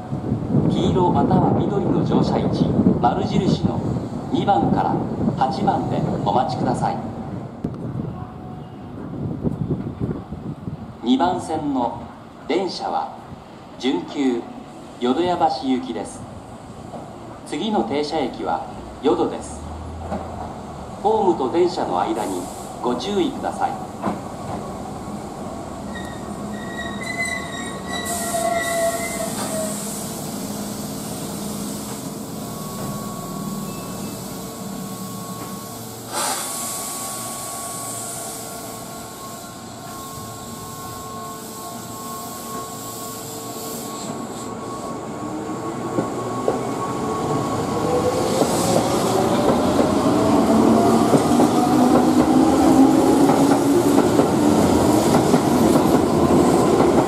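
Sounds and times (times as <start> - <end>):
electric train humming: 24.4 - 57.0.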